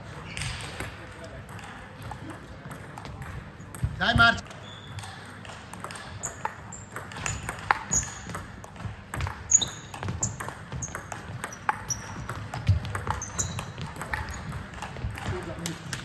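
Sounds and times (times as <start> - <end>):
ball bouncing on table: 0.4 - 16.0
ball clicking off paddles: 5.0 - 16.0.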